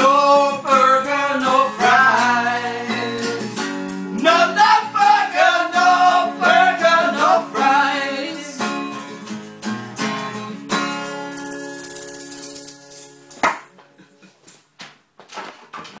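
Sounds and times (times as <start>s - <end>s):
person singing: 0.0s - 9.3s
acoustic guitar strumming: 0.0s - 14.0s.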